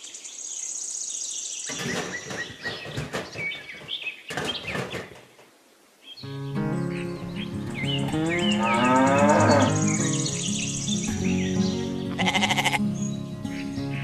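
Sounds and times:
bird chirps: 0:06.0 - 0:14.0
high rapid bird trill: 0:06.8 - 0:12.9
cow mooing: 0:08.0 - 0:10.3.

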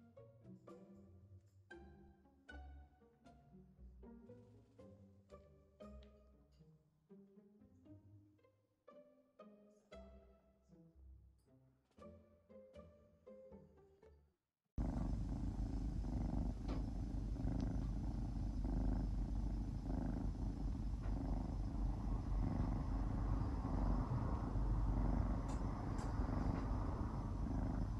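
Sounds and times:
kitten purring: 0:14.8 - 0:27.9.

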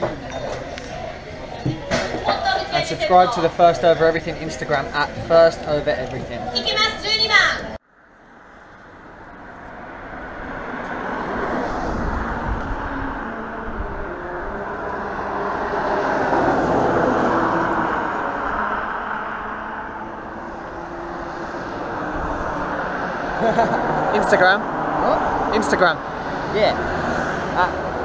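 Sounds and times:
road traffic rumble: 0:00.0 - 0:28.0
wind buffeting microphone: 0:10.0 - 0:15.5.

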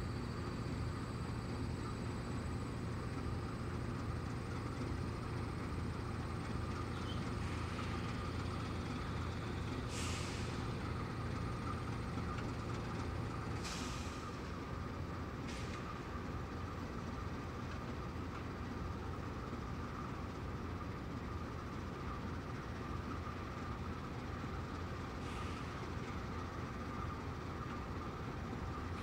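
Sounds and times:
diesel locomotive idling: 0:00.0 - 0:29.0
air release hisses: 0:09.8 - 0:10.7, 0:13.6 - 0:14.4.

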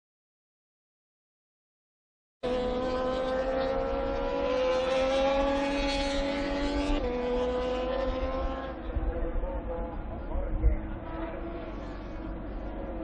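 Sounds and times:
motorcycle engine at high revs: 0:02.4 - 0:09.0.

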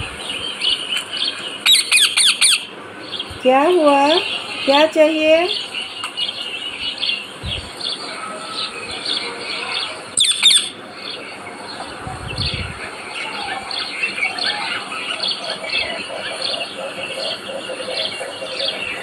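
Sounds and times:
birds chirping: 0:00.0 - 0:19.0
soft low thumps: 0:07.4 - 0:07.7, 0:12.0 - 0:12.8.

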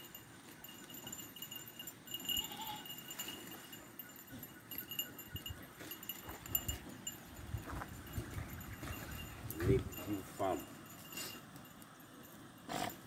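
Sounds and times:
high-pitched ringing: 0:00.0 - 0:13.0
goat bleating: 0:02.2 - 0:03.0.

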